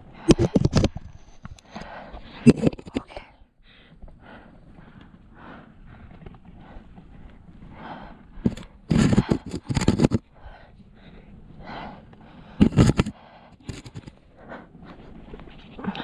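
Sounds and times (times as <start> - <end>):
hands scraping rock: 0.2 - 3.2, 8.5 - 10.2, 12.6 - 14.2.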